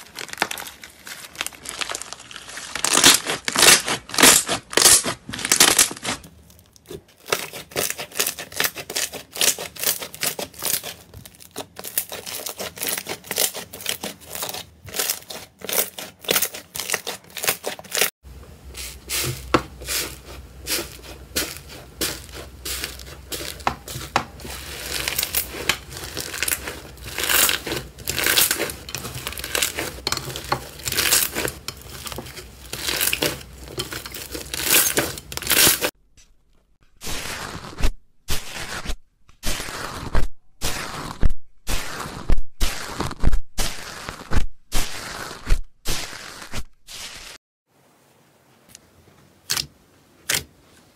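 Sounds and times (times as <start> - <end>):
slime crackling and popping: 0.0 - 18.1, 21.3 - 36.0, 39.4 - 47.4.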